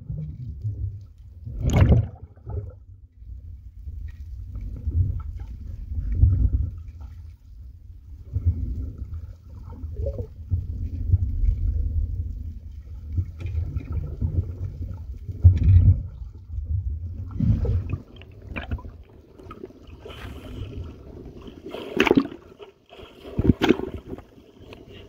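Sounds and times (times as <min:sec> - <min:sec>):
muffled underwater rumble and gurgle: 0:00.0 - 0:25.0
water sloshing and splashing: 0:00.0 - 0:25.0
sharp water splashes: 0:01.6 - 0:02.5, 0:21.7 - 0:22.6.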